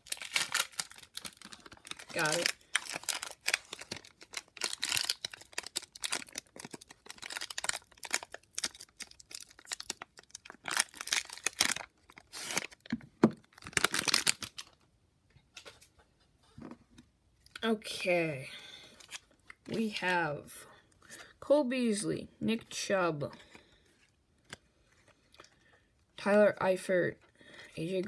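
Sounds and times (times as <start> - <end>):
plastic wrapper crinkling and tearing: 0.0 - 14.9, 19.0 - 19.8.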